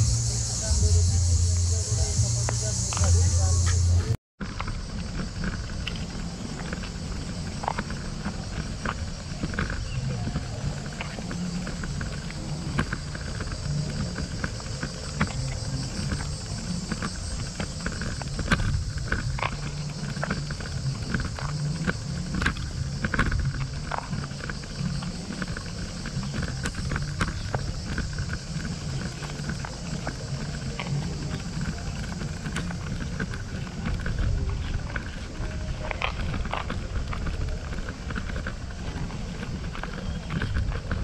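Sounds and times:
steady high hiss: 0.0s - 4.2s
wind rumbling on microphone: 0.0s - 41.0s.

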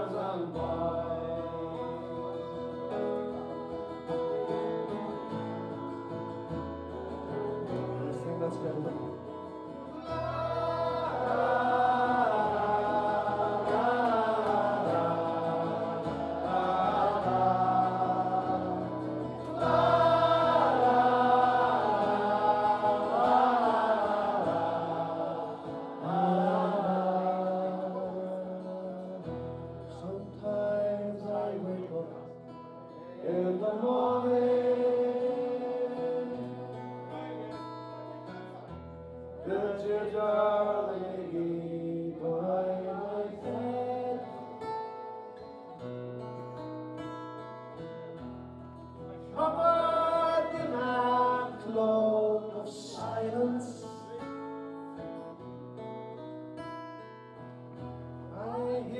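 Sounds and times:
man singing a ballad: 0.0s - 3.3s, 7.3s - 32.6s, 33.2s - 36.4s, 39.4s - 44.8s, 49.3s - 54.4s, 58.3s - 58.9s
strummed acoustic guitar: 0.0s - 58.9s.

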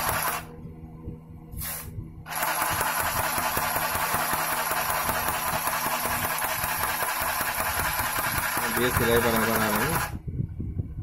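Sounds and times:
sewing machine motor whir: 0.0s - 0.5s, 2.3s - 10.2s.

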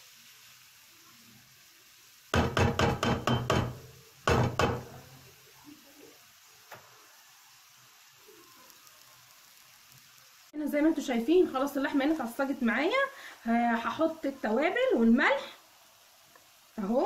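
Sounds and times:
meat sizzling: 0.0s - 17.0s
spatula knocking against frying pan: 2.3s - 4.9s.

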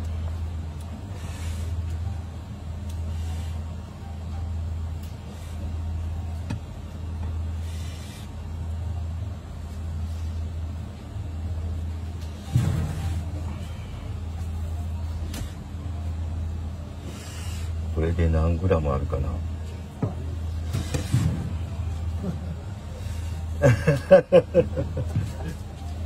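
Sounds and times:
low machine hum: 0.0s - 26.0s.

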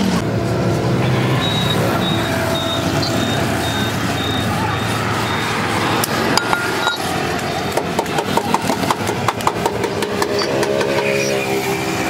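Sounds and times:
car engine idling: 0.2s - 10.7s.

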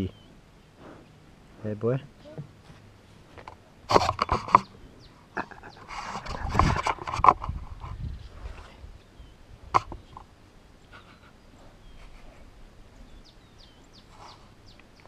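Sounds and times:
faint bird chirps: 0.0s - 1.2s.

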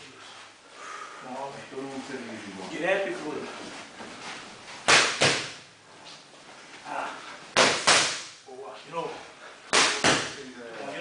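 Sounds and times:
boxing gloves smacking mitts: 4.8s - 5.7s, 7.5s - 8.4s, 9.7s - 10.4s.

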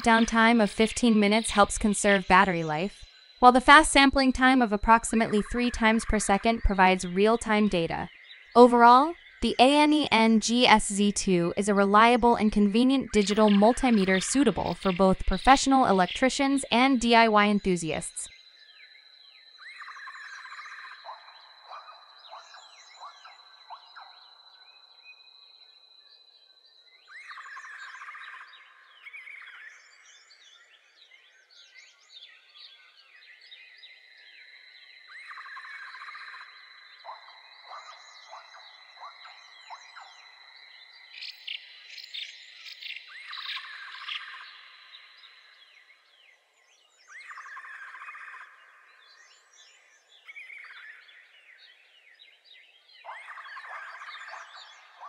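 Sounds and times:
birds chirping: 0.0s - 18.3s
faint steady high tone: 0.0s - 18.3s.

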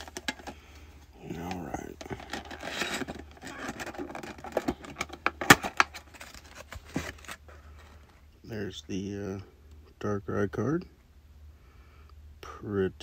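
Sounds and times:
plastic crinkling and snapping: 1.3s - 8.2s.

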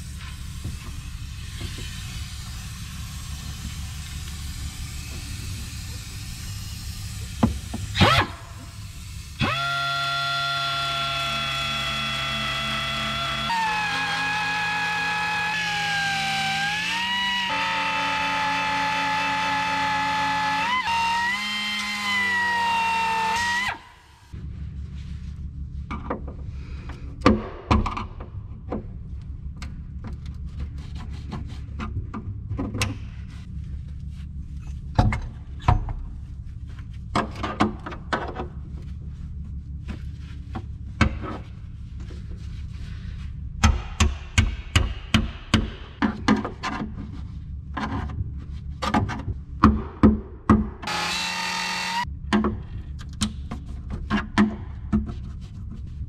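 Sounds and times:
steady low hum: 0.0s - 15.4s, 23.7s - 50.8s
air grinder whining: 0.0s - 24.3s, 50.8s - 52.1s.

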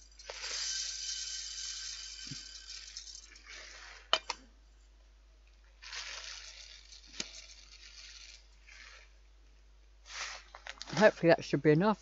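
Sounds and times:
rice pouring into metal pan: 0.0s - 4.2s, 5.8s - 9.0s.

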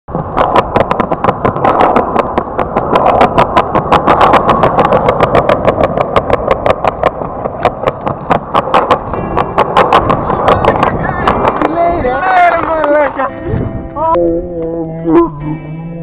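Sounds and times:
skateboard wheels rumbling: 0.1s - 14.2s
wheels clicking over slab joints: 0.1s - 14.4s.

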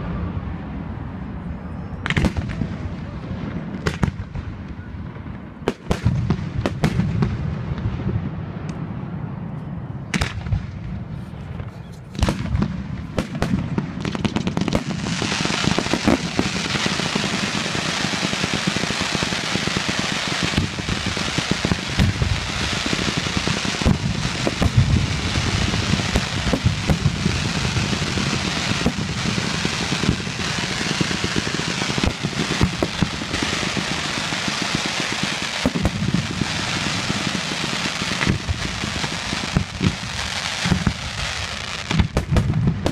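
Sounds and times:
rapid firework bangs: 2.0s - 4.6s, 5.6s - 8.0s, 11.6s - 42.9s
firework shells booming: 11.6s - 42.9s.

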